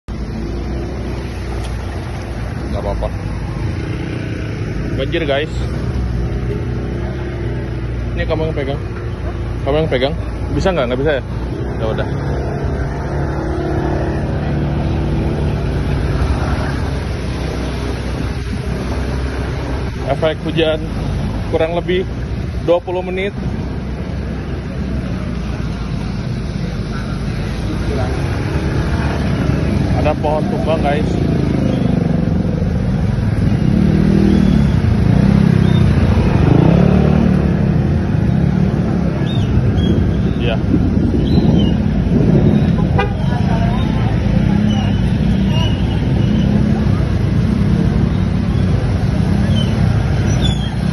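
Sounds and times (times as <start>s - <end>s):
scooter engine humming: 0.1s - 22.6s, 23.3s - 50.9s
tyres hissing on wet road: 0.2s - 8.1s, 12.9s - 39.5s.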